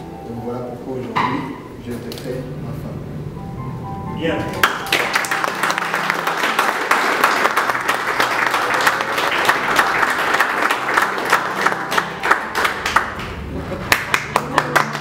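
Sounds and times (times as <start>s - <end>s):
people clapping: 4.5s - 15.0s.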